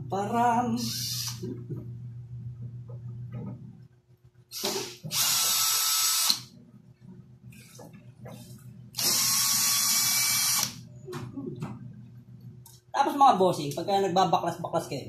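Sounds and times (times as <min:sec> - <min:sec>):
power drill motor running: 0:00.8 - 0:01.4, 0:04.5 - 0:06.5, 0:09.0 - 0:10.8.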